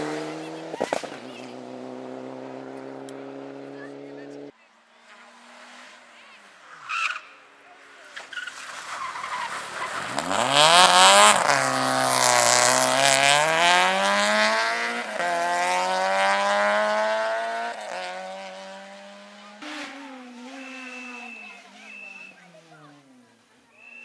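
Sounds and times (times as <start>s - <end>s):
rally car accelerating through gears: 0.0s - 4.5s, 9.5s - 23.2s.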